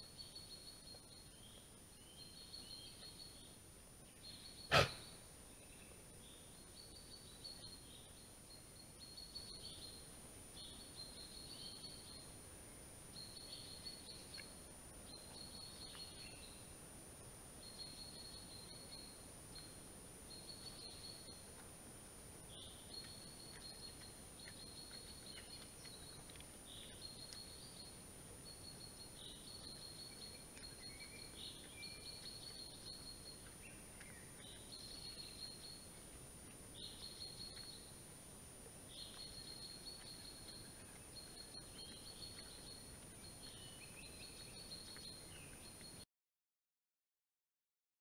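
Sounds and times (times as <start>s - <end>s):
steady hiss: 18.6s - 24.4s
songbirds trilling: 22.5s - 35.9s, 36.7s - 38.0s, 38.9s - 46.0s.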